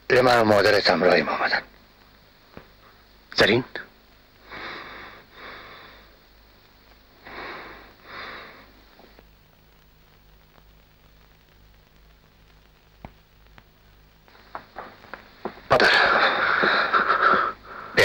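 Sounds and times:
faint hiss: 0:00.0 - 0:18.0
person breathing heavily: 0:04.5 - 0:06.2, 0:07.2 - 0:08.8, 0:15.7 - 0:18.0.

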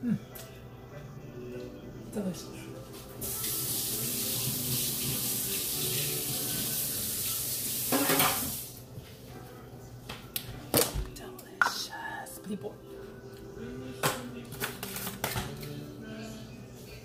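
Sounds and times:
faint background music: 0:00.0 - 0:17.0
faucet running into sink: 0:03.2 - 0:08.8.

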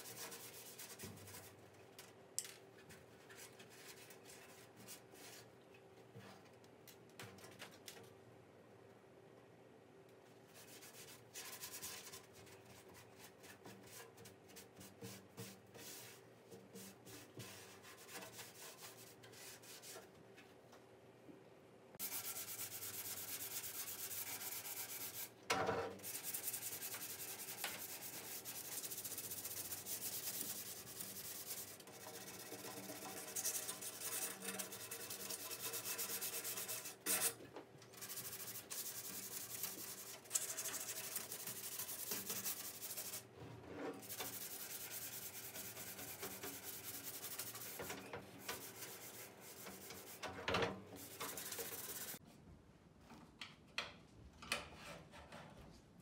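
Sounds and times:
sanding pad rubbing on metal: 0:22.0 - 0:25.3, 0:26.0 - 0:37.4, 0:38.0 - 0:43.2, 0:44.0 - 0:50.2, 0:51.0 - 0:52.2.

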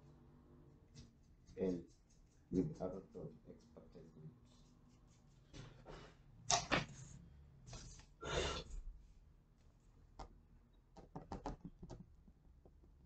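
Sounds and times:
pencil strokes on paper: 0:00.8 - 0:06.1.

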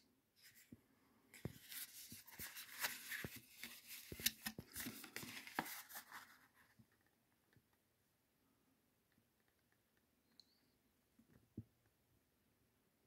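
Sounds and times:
paper card crinkling: 0:01.4 - 0:06.8.

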